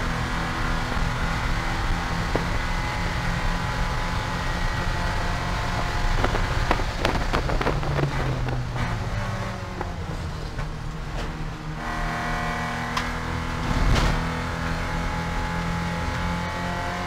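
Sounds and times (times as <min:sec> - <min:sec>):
race car engine under load: 0:00.0 - 0:17.0
loud thump: 0:13.6 - 0:14.4.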